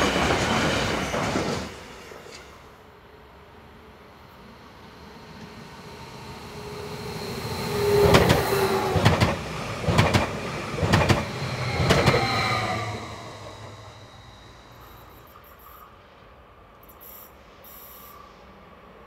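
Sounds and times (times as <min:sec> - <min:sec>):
thin train whine: 0:00.0 - 0:19.0
train passing rumble: 0:00.0 - 0:19.0
wheels clacking on track: 0:07.8 - 0:12.8.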